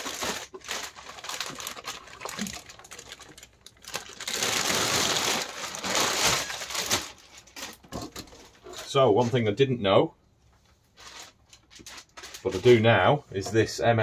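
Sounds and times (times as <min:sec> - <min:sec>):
plastic bag crinkling: 0:00.0 - 0:08.8, 0:11.0 - 0:12.9.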